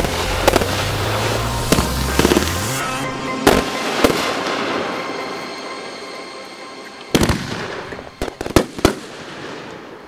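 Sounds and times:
fireworks bangs: 0.0s - 2.8s, 3.4s - 5.0s, 7.1s - 10.0s.

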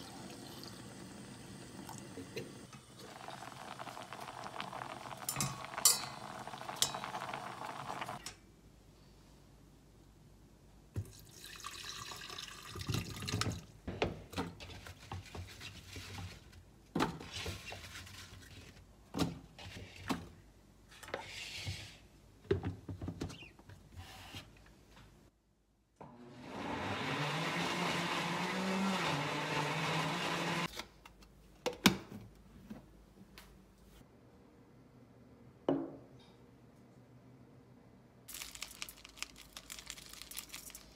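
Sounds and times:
liquid pouring: 0.0s - 2.2s, 2.8s - 8.2s, 11.0s - 13.5s, 38.3s - 40.9s
blender running: 26.0s - 30.7s.

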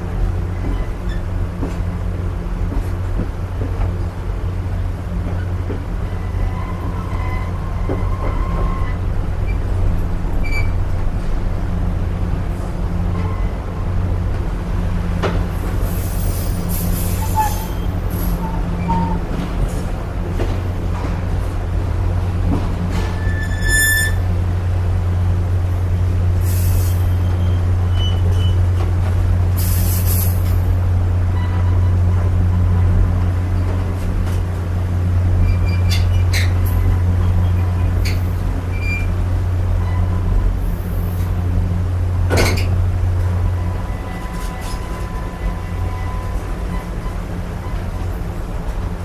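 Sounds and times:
train rumbling: 0.0s - 49.0s
high metallic squeaks: 23.2s - 24.2s.

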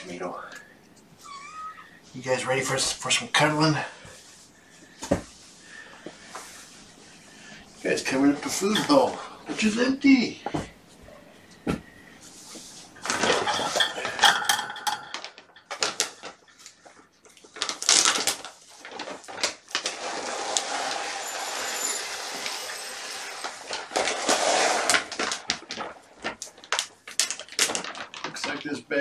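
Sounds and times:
plastic bag rustling: 12.4s - 28.8s
bowls clattering: 13.0s - 15.8s
kibble rattling into bowls: 13.0s - 16.4s.

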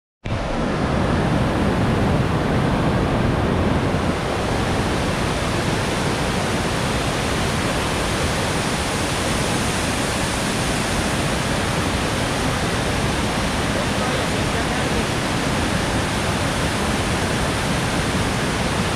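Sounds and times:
water rushing over spillway: 0.3s - 18.9s.

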